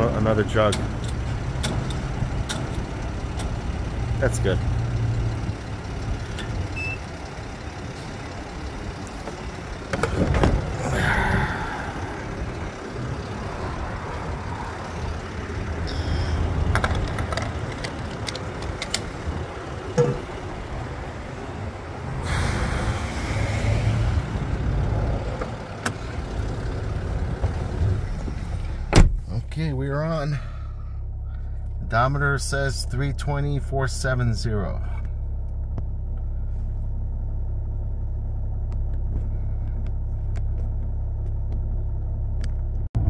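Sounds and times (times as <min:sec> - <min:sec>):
vehicle engine idling: 0:00.0 - 0:43.0
knocks and clicks of handling: 0:16.7 - 0:19.1.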